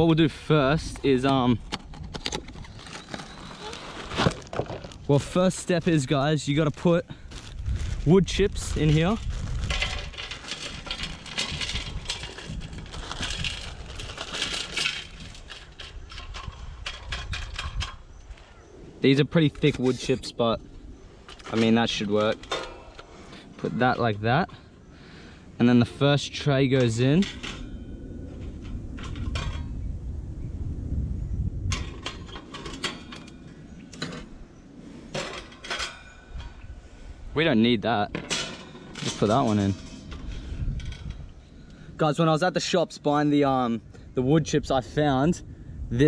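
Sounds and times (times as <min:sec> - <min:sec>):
plastic bag rustling: 0:01.6 - 0:15.9
wood chips clattering into metal tray: 0:08.3 - 0:15.9, 0:38.2 - 0:40.1
wire rack rattling in metal box: 0:08.7 - 0:18.0, 0:38.2 - 0:41.1.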